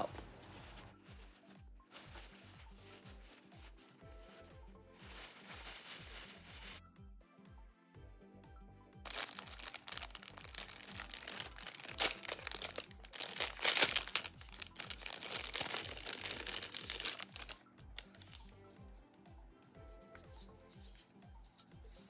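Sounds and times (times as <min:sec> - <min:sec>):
tissue paper crinkling: 0:00.0 - 0:04.4, 0:05.0 - 0:06.8, 0:09.1 - 0:18.5
soft background music beat: 0:00.0 - 0:22.0.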